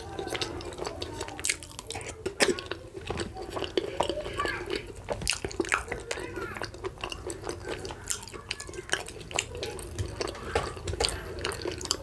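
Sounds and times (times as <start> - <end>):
fingers mashing soft food: 0.0 - 12.0
wet chewing: 0.0 - 12.0.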